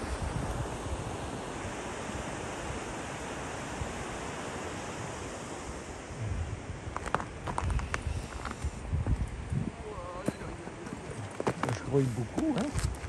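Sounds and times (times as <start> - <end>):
wind on microphone: 0.0 - 13.0.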